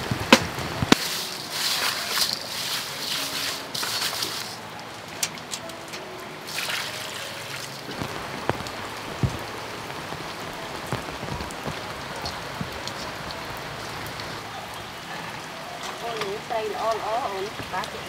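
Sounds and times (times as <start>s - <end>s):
rain hissing: 0.0s - 18.0s
fish scrubbed in salt in bowl: 1.0s - 4.6s.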